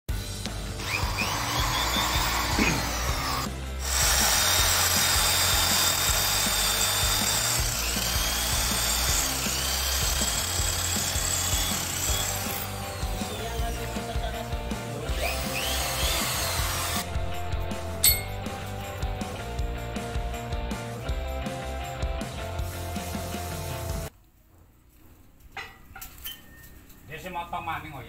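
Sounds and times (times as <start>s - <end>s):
background music: 0.1s - 24.1s
electric drill boring through metal: 0.7s - 14.0s, 15.0s - 17.2s.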